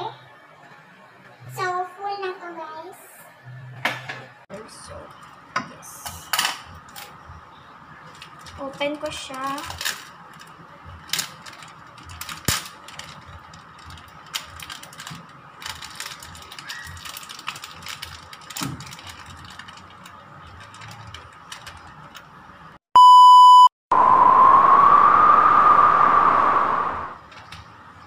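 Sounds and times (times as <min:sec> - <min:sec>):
plastic packaging crinkling: 0:09.4 - 0:22.1
test-tone beep: 0:23.0 - 0:23.7.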